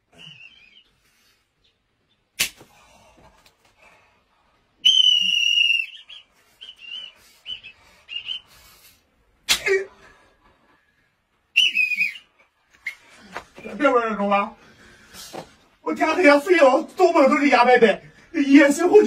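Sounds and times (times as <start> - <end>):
rubber band snapping: 2.4 - 2.7
high steady whistle: 4.8 - 8.9, 11.5 - 13.1.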